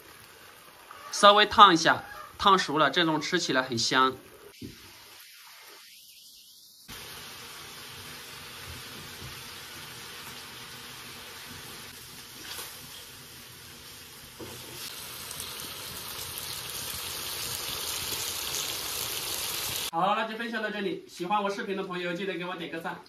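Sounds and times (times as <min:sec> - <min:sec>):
food sizzling in a wok: 0:00.0 - 0:01.6, 0:04.2 - 0:19.9.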